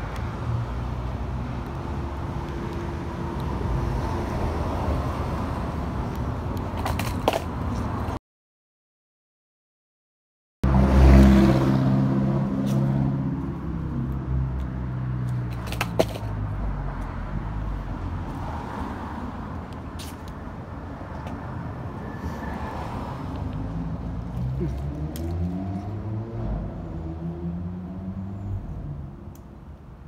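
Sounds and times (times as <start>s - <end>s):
skateboard wheels on concrete: 0.0s - 8.2s, 12.6s - 26.0s
skateboard clacks: 6.6s - 7.5s, 15.5s - 16.3s.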